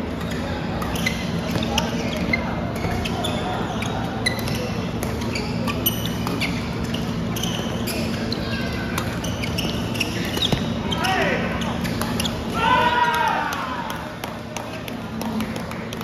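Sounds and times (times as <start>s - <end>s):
shoes squeaking on court: 0.0s - 12.6s
murmur of background chatter: 0.0s - 16.0s.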